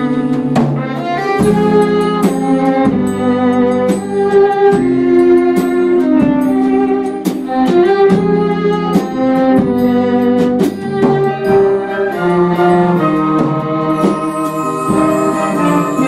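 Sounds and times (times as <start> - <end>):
string ensemble playing: 0.0 - 16.0.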